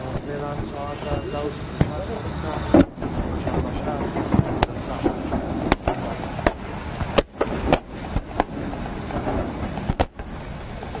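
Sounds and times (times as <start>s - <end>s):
steady rushing background noise: 0.0s - 11.0s
gunshots: 0.2s - 10.3s.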